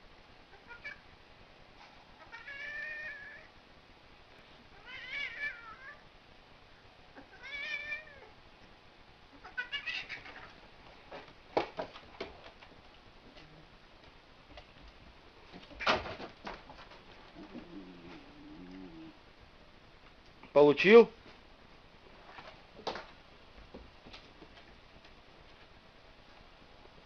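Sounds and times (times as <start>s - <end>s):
cat yowling: 0.5s - 1.0s, 2.2s - 3.5s, 4.8s - 6.0s, 7.2s - 8.3s, 9.4s - 10.6s.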